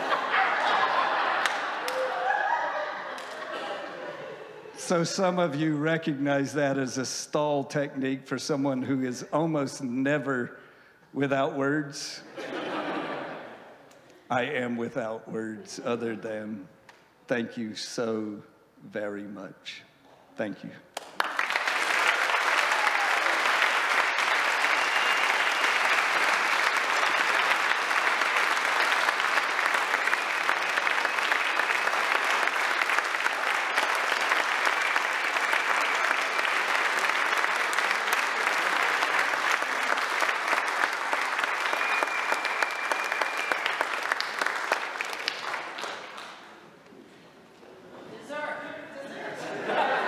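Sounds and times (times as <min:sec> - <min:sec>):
dense audience applause: 0:00.0 - 0:04.1, 0:21.0 - 0:46.6.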